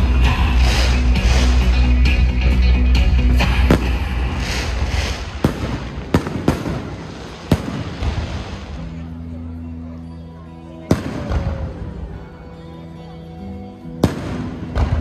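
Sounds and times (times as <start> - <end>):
fireworks bangs: 0.0 - 2.3, 3.4 - 9.0, 14.0 - 15.0
bass-heavy show music: 0.0 - 5.8
fireworks crackling: 0.0 - 9.3, 10.9 - 12.3, 14.0 - 15.0.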